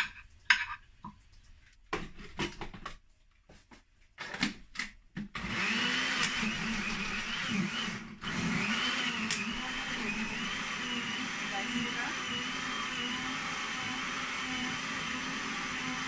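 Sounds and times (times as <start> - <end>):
blender motor running: 5.4 - 16.0.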